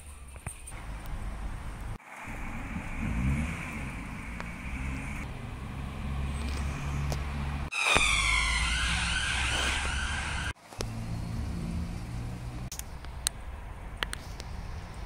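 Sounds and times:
traffic rumble: 0.0 - 15.0
emergency vehicle siren wailing: 7.6 - 10.6.

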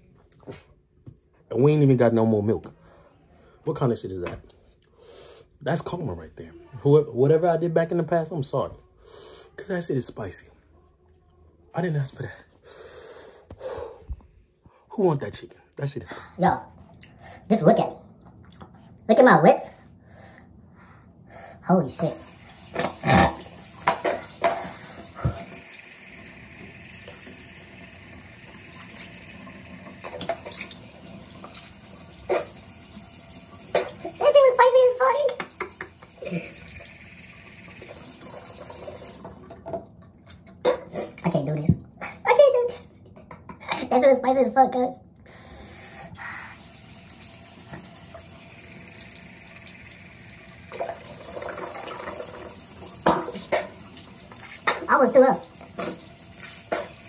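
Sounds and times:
faucet running into sink: 22.0 - 40.2, 46.5 - 57.0.

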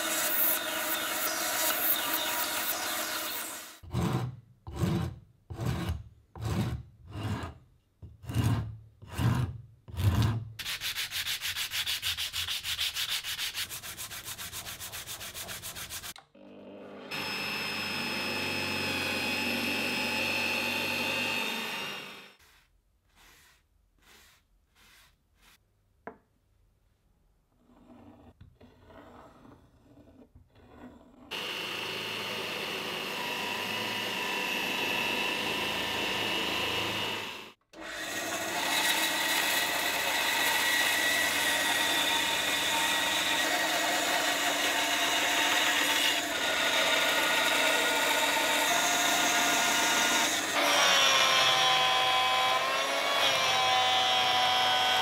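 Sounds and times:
hand rasp on hardwood: 3.9 - 7.6, 8.2 - 16.2, 22.4 - 25.6
drill press whine: 16.4 - 22.3
faint scrapes: 22.4 - 25.6.

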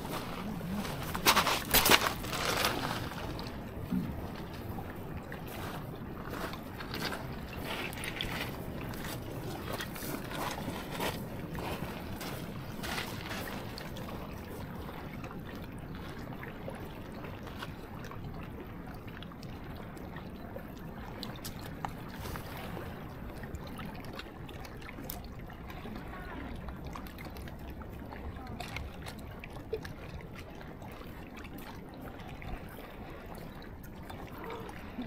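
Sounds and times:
steady low rumble: 0.0 - 24.0
water lapping and trickling: 0.0 - 35.0.

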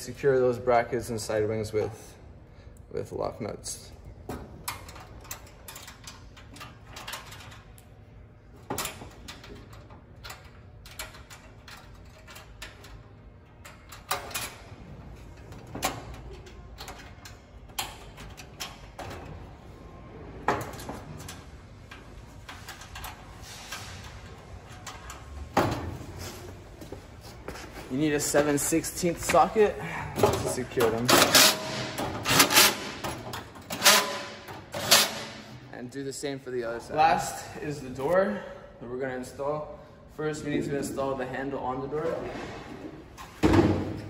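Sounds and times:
metal parts clicking and clanking: 4.2 - 19.6, 20.4 - 26.1, 28.2 - 35.7.

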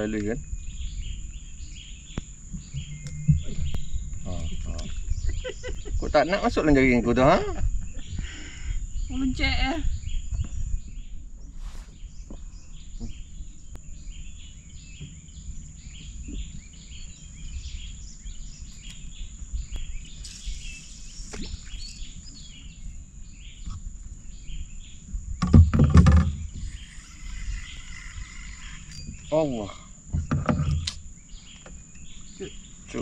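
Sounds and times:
birds chirping and calling: 0.0 - 33.0
high insect drone: 0.0 - 33.0
low rumble: 2.6 - 11.1.

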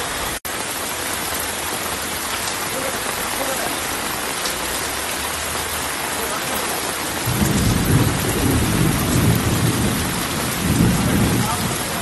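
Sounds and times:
heavy rain falling: 0.0 - 12.0
runoff pouring from roof edges: 0.0 - 12.0
low rumble of thunder: 7.2 - 12.0.

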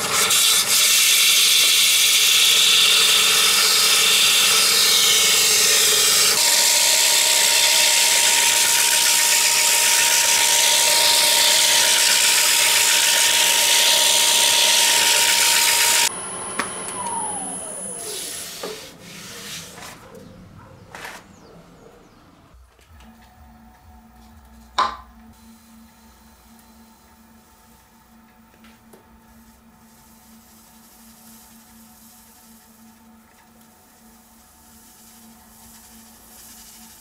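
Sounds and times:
lathe whine: 0.0 - 19.1
lathe tool scraping hiss: 0.0 - 19.8.

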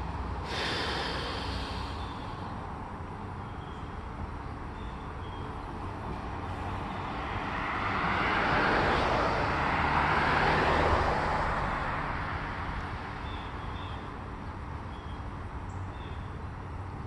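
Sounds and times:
vehicle driving past: 6.2 - 13.4.

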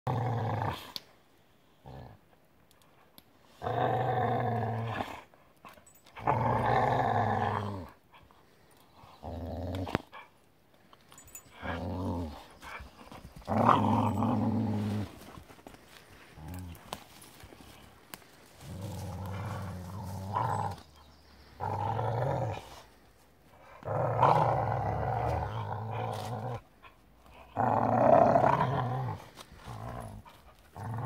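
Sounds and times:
dogs growling: 6.1 - 8.0, 11.3 - 31.0.

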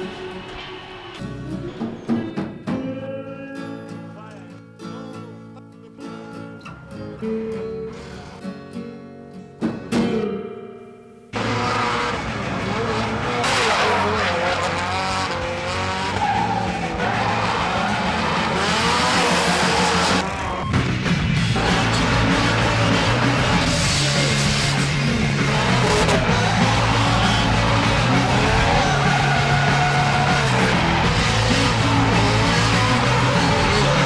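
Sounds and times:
guitar music: 0.0 - 34.0
car engine revving hard: 11.4 - 20.3, 21.4 - 34.0
tyres squealing: 11.4 - 20.8.

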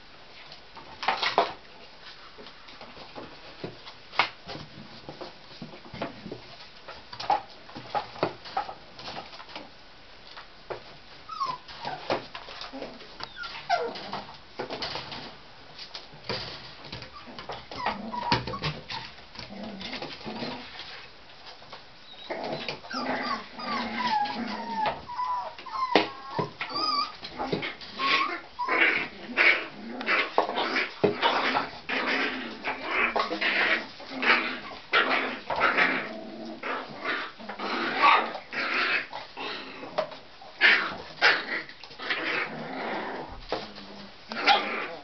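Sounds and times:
puppies whimpering and yipping: 11.3 - 12.2, 13.2 - 14.1, 17.0 - 19.1, 22.1 - 29.1.

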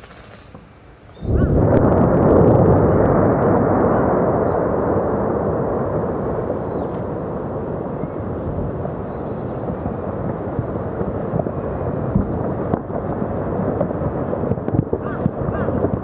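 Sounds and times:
volcanic eruption rumble: 0.0 - 16.0
faint bird calls: 15.0 - 15.8.

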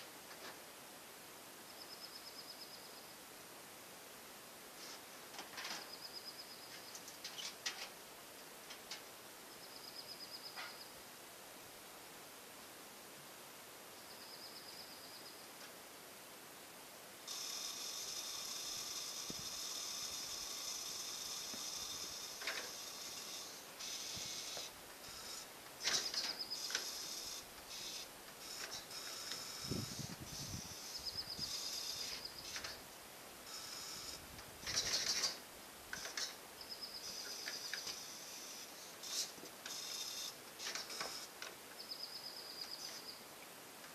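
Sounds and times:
loud scraping noises: 17.3 - 32.8
small birds calling and trilling: 23.1 - 32.7, 36.0 - 38.0, 39.1 - 43.3.

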